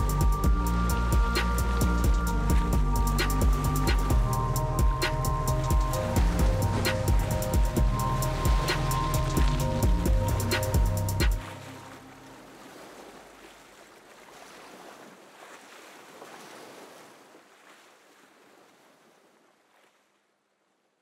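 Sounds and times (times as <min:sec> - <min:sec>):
rushing whitewater roar: 0:00.0 - 0:13.5.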